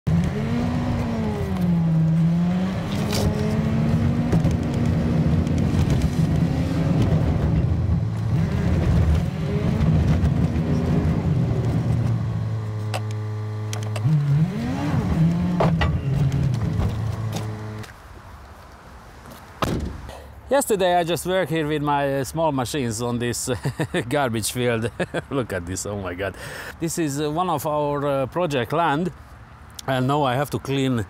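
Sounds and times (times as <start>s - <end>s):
vehicle engine revving: 0.1s - 17.8s.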